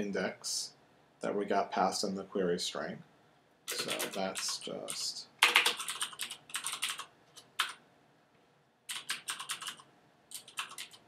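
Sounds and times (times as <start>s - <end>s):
typing on computer keyboard: 3.7s - 7.8s, 8.9s - 11.0s.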